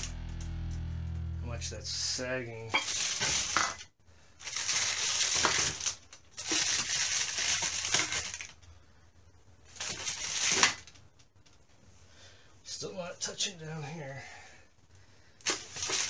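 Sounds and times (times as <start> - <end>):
plastic bag rustling: 2.8 - 3.8, 4.4 - 8.6, 9.7 - 10.9, 15.4 - 16.0.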